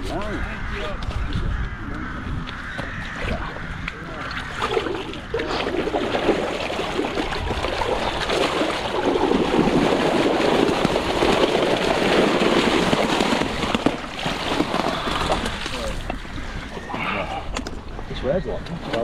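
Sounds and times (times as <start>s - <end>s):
water splashing from net: 4.3s - 16.2s.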